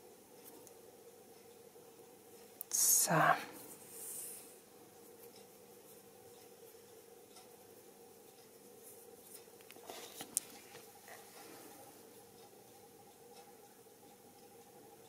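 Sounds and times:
low steady hum: 0.0 - 15.0
soft rustling: 8.5 - 12.2.

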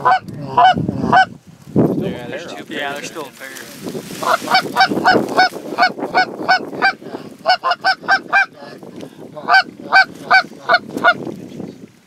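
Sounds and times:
geese honking: 0.0 - 1.3, 4.2 - 8.6, 9.4 - 11.2.

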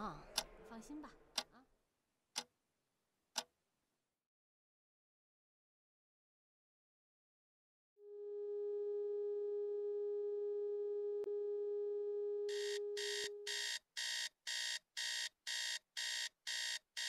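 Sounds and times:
rapid alarm beeping: 12.5 - 16.8.

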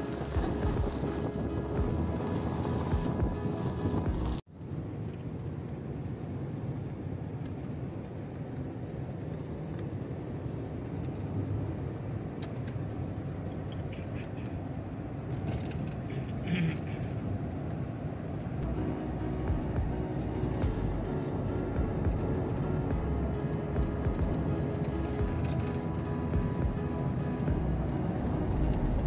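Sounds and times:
car engine and tyre noise: 0.0 - 29.0.

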